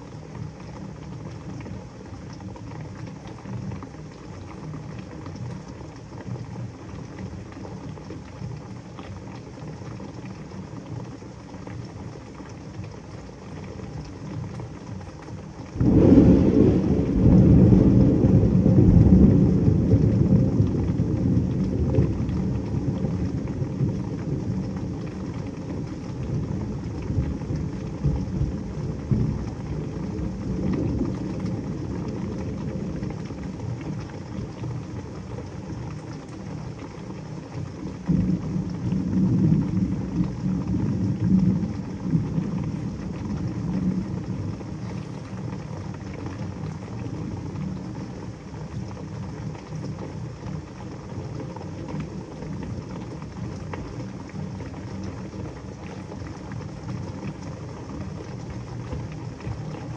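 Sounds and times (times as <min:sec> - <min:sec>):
heavy rain: 0:00.0 - 0:59.9
thunderclap rumble: 0:15.7 - 0:34.6, 0:37.9 - 0:46.0.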